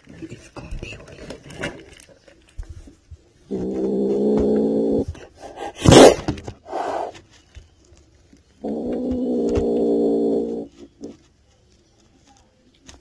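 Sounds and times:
kitten growling: 3.5s - 7.1s, 8.6s - 11.1s.

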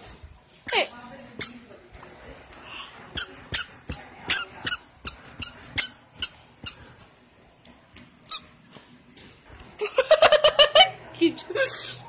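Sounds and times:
squeaky toy squeaking: 3.2s - 3.7s, 4.3s - 6.8s.

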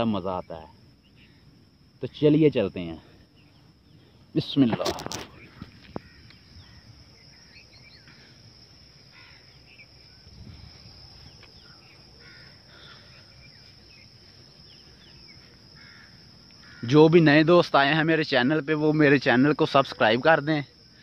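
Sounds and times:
high insect drone: 0.0s - 21.0s
bird chirps and calls: 5.3s - 8.3s.

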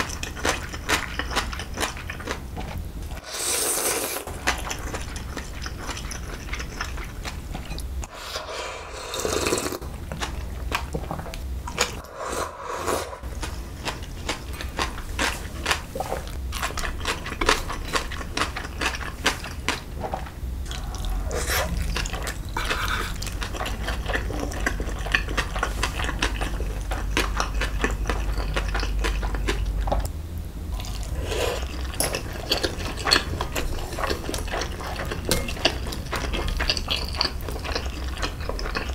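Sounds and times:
noodles slurped and chewed: 20.7s - 30.0s, 30.8s - 38.9s.

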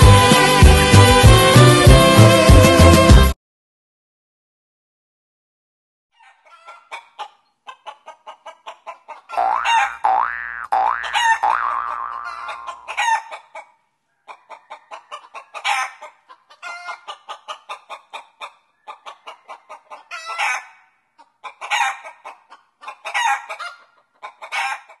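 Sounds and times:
chicken squawks: 6.2s - 25.0s
chickens clucking: 6.2s - 25.0s.

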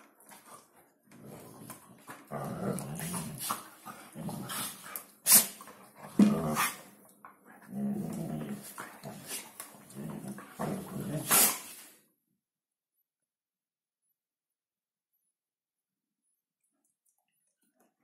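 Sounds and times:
dogs growling: 0.4s - 11.8s.

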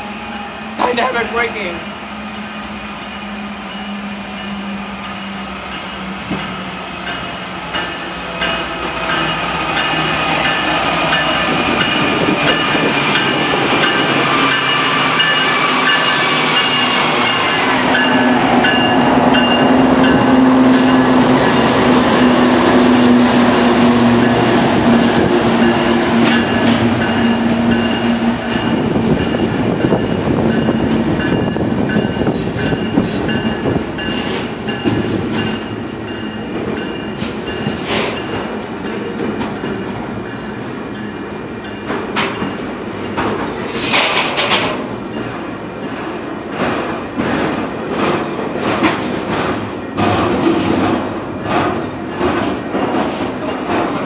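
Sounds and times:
freight cars rumbling: 0.0s - 54.0s
diesel locomotive braking whine: 1.8s - 38.0s.

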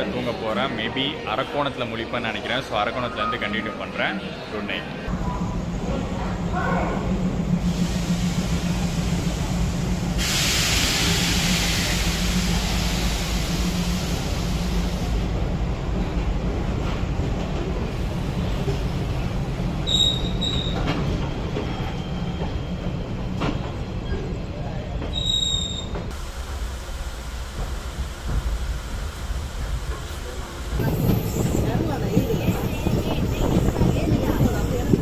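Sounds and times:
train low rumble: 5.0s - 35.0s
loud hiss: 7.7s - 15.2s
high wheel squeal: 19.8s - 20.9s, 25.1s - 26.0s.

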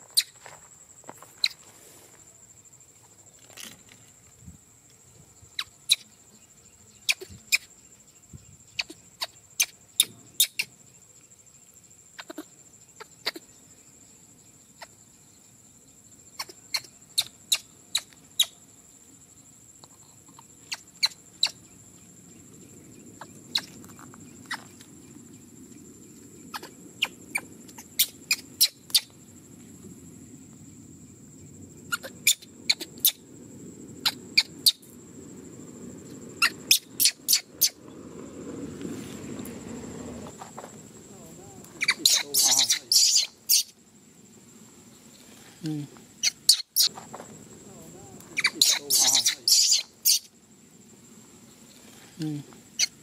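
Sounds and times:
low rustling: 33.4s - 41.8s.

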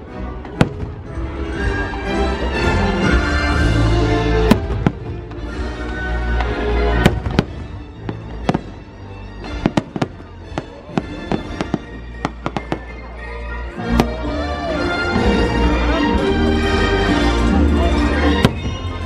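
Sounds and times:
music playing: 0.0s - 19.0s
fireworks bangs: 0.4s - 1.3s, 4.4s - 8.8s, 9.4s - 13.0s, 18.4s - 19.0s.

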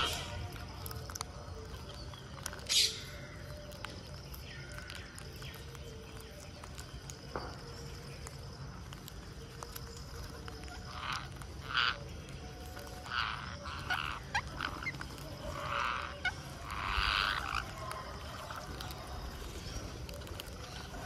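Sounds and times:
parakeets calling: 0.0s - 21.0s.

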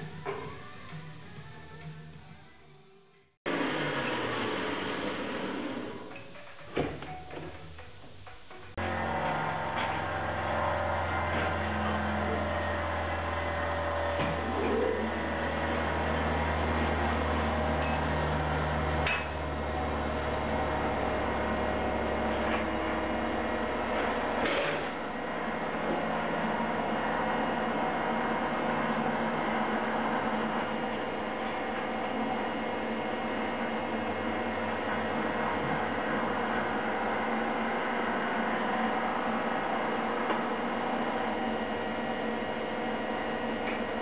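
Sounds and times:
arc welder humming and hissing: 8.8s - 44.0s.

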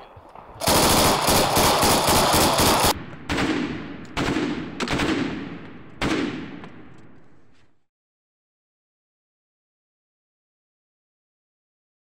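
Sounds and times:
machine gun automatic fire: 0.6s - 3.6s
loud echoing gunshots: 0.6s - 6.9s.

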